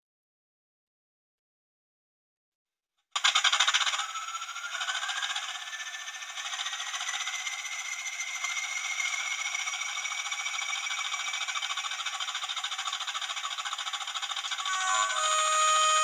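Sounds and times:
turbocharger whine: 3.2 - 16.0
model diesel engine sound: 4.2 - 16.0.

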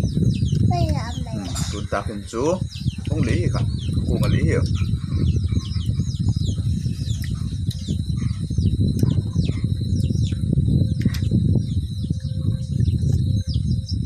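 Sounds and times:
small birds chirping: 0.0 - 14.0
steady low rumble: 0.0 - 14.0.

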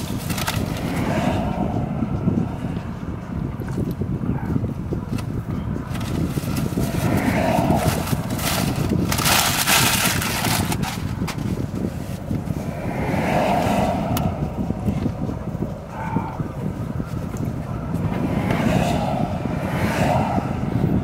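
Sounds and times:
paper bag rustling: 0.0 - 0.8, 5.9 - 11.6
road traffic rumble: 0.0 - 21.0.

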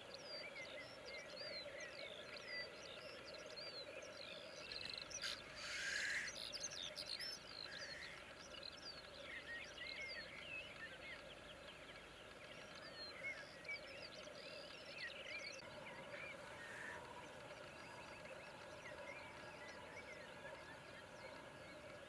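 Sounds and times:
grouse bubbling song: 0.0 - 22.0
songbirds chirping: 0.0 - 22.0
grouse hissing call: 5.2 - 6.4, 16.3 - 17.4.

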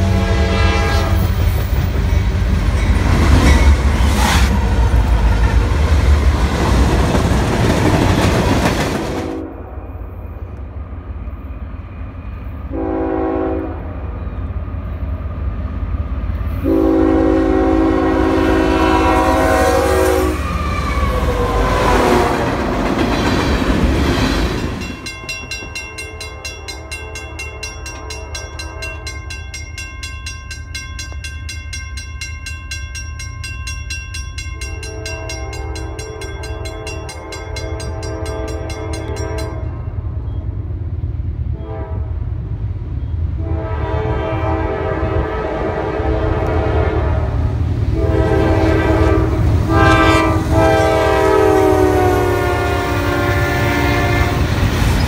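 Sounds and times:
train horn: 0.0 - 1.7, 9.1 - 10.2, 12.6 - 14.2, 16.5 - 22.8, 26.0 - 29.4, 34.7 - 40.0, 41.5 - 42.3, 43.4 - 54.6.

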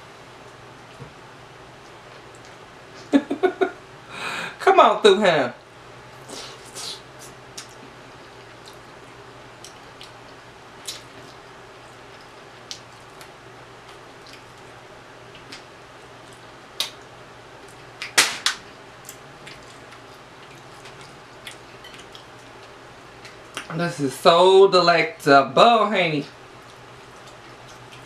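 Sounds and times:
chewing with lip smacks: 1.7 - 2.7, 6.2 - 18.2, 19.0 - 23.7, 26.4 - 28.0.

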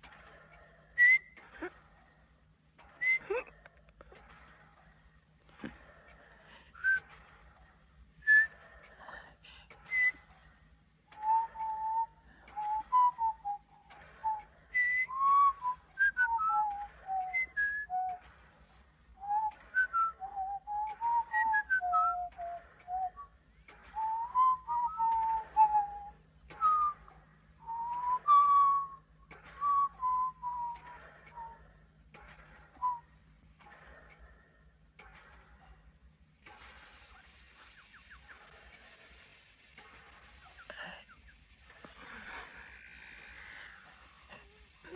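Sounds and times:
man whistling: 1.0 - 1.4, 3.0 - 3.3, 6.8 - 7.2, 8.2 - 8.6, 9.7 - 10.3, 11.2 - 18.2, 19.2 - 23.3, 24.0 - 29.0, 29.6 - 31.6, 32.8 - 33.0.

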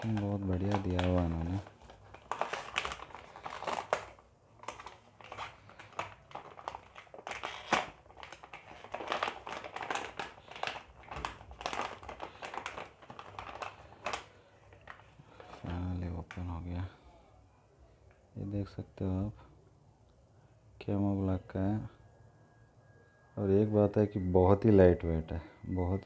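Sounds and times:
plastic packaging crinkling: 0.0 - 16.5.

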